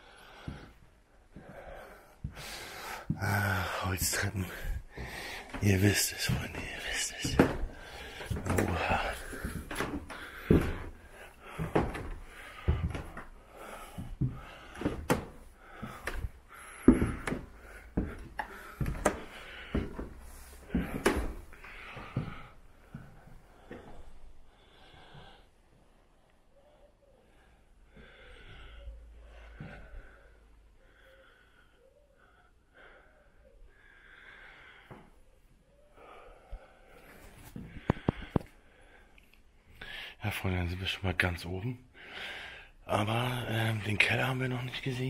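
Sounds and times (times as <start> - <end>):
person breathing softly: 0.0 - 40.2, 41.9 - 42.9
footsteps on wooden stairs: 0.4 - 24.1.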